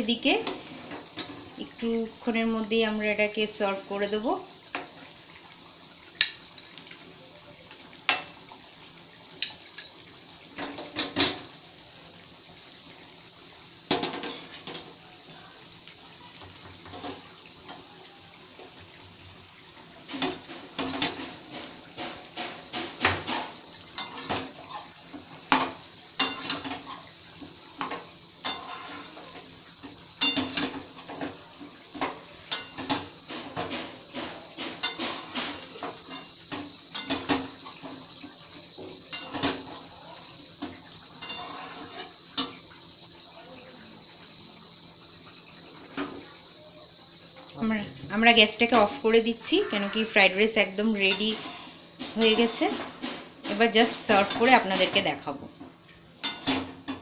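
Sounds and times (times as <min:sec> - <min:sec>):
metal spatula scraping a wok: 0:20.3 - 0:27.1, 0:27.8 - 0:29.4, 0:32.0 - 0:36.3, 0:41.2 - 0:42.6, 0:48.1 - 0:53.0.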